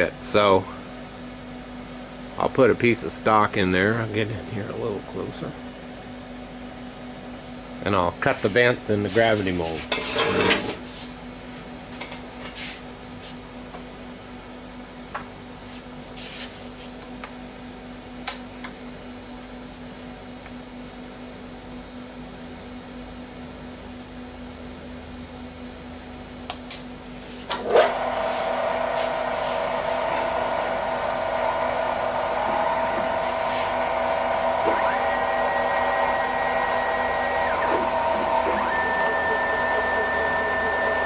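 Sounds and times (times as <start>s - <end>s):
milling machine motor whining: 27.5s - 41.0s
steady low hum: 28.6s - 41.0s.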